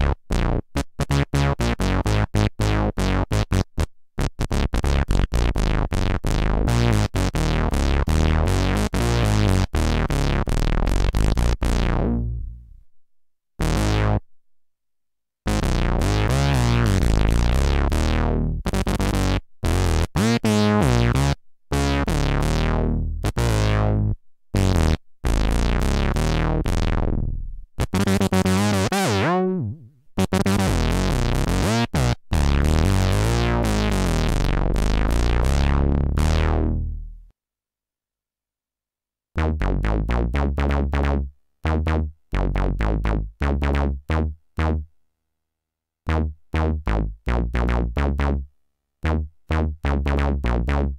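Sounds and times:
analogue synthesizer chords: 0:05.7 - 0:12.8, 0:15.5 - 0:24.0, 0:24.6 - 0:37.2.

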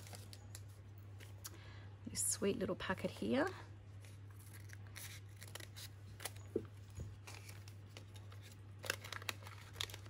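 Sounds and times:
low steady hum: 0:00.0 - 0:10.0
paper rustling: 0:04.0 - 0:10.0.

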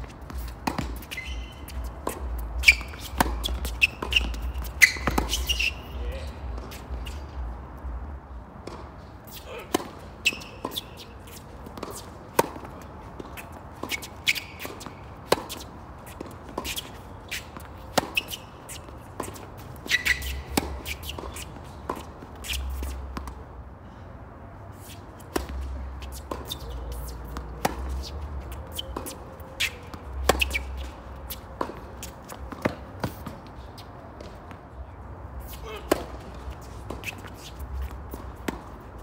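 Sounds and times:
ball bouncing on hard court: 0:00.0 - 0:05.9, 0:11.7 - 0:23.4, 0:25.3 - 0:33.4, 0:35.6 - 0:37.2
rackets hitting tennis ball: 0:00.0 - 0:07.3, 0:08.6 - 0:23.4, 0:24.8 - 0:34.8, 0:35.4 - 0:39.0.

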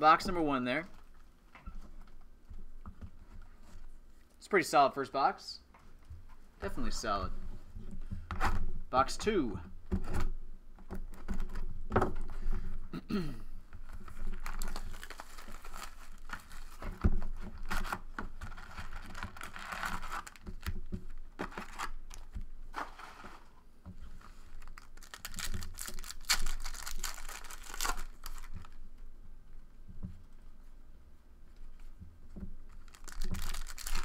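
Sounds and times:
foil pack tearing and crinkling: 0:14.0 - 0:20.8, 0:21.4 - 0:23.5, 0:24.2 - 0:28.8, 0:32.8 - 0:34.0.

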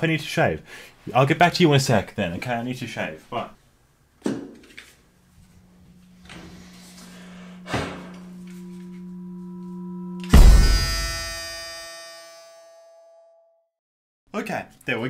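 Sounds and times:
electric shaver humming: 0:05.2 - 0:12.2
loud ringing clang: 0:05.4 - 0:13.3.

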